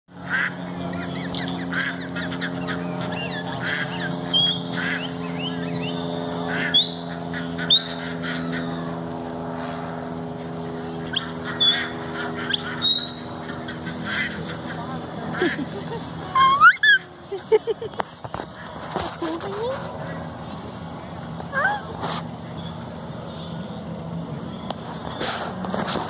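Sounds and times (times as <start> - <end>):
steady low hum: 0.1 - 26.0
ducks quacking: 0.2 - 5.2, 6.4 - 8.9, 11.0 - 15.8.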